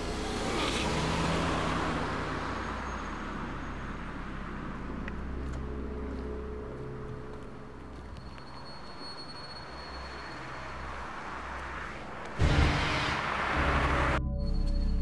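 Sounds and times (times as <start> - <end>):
car driving past: 9.6 - 14.2.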